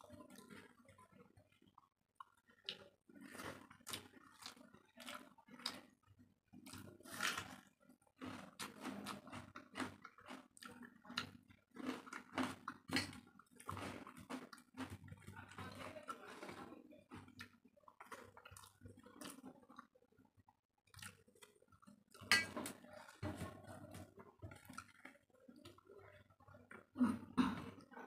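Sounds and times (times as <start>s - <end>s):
person chewing and lip-smacking: 8.2s - 15.6s, 20.9s - 22.4s.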